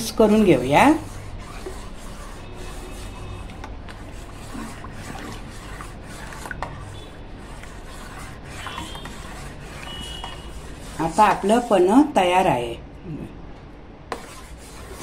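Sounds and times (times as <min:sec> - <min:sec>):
spoon scraping steel pot: 0:01.5 - 0:11.9.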